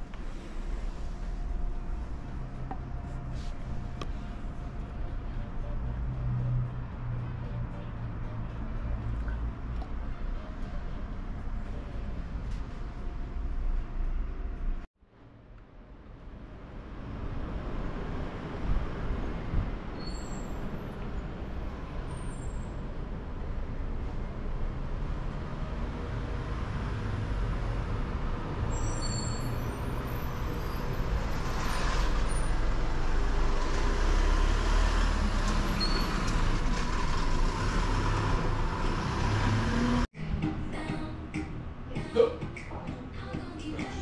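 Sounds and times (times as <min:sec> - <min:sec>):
road traffic rumble: 0:00.0 - 0:44.0
faint high squeaks: 0:20.0 - 0:20.9, 0:28.7 - 0:32.6, 0:35.7 - 0:36.4.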